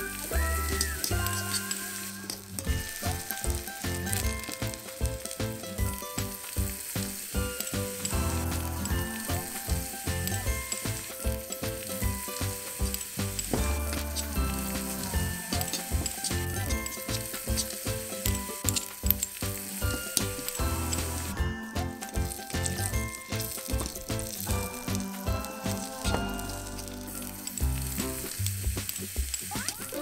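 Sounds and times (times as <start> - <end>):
soft background music: 0.0 - 29.1
vegetables sizzling in a pan: 0.0 - 30.0
metal spoon scraping a pan: 0.6 - 4.8, 10.7 - 21.4.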